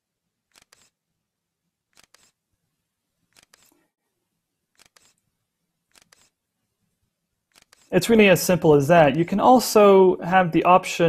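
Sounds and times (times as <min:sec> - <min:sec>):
faint camera shutter clicks: 0:00.5 - 0:01.0, 0:01.9 - 0:02.4, 0:03.3 - 0:03.8, 0:04.7 - 0:05.2, 0:05.9 - 0:06.4, 0:07.5 - 0:07.9.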